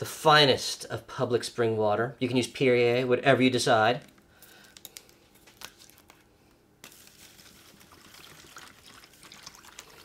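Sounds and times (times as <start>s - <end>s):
water trickling into plastic tub: 6.9s - 10.0s.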